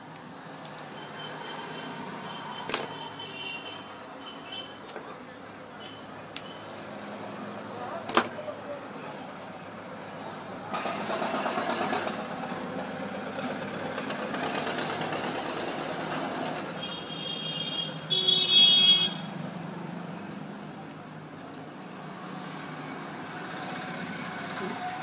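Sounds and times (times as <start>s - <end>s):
road traffic noise: 0.0s - 25.0s
vehicle horn tooting: 16.8s - 19.3s.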